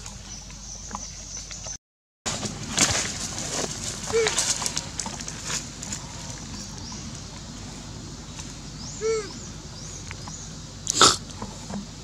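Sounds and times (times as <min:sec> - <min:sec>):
animal call: 0:04.1 - 0:04.6, 0:08.8 - 0:09.6
faint bird chirps: 0:08.3 - 0:10.6.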